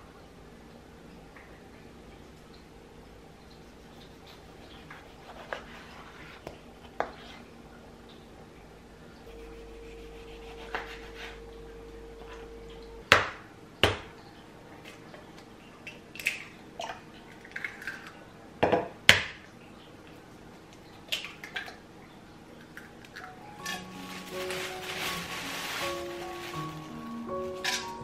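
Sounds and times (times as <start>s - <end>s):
steady low hum: 6.6s - 15.9s.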